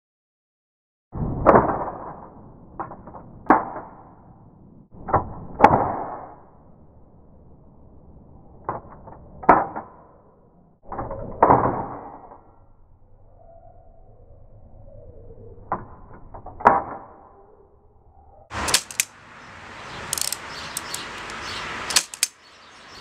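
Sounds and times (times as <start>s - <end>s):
light typewriter click: 18.6s - 19.1s, 20.1s - 22.4s
typewriter metallic clacks: 18.6s - 19.1s, 21.9s - 22.4s.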